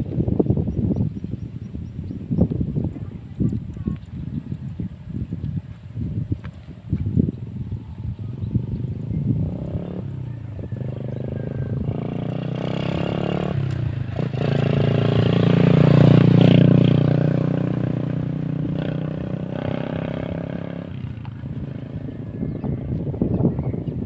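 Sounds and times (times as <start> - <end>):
vehicle engine passing by: 7.6 - 23.5.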